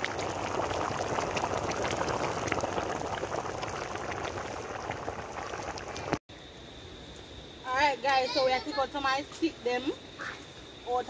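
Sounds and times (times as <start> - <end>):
pot of rice bubbling: 0.0 - 6.2.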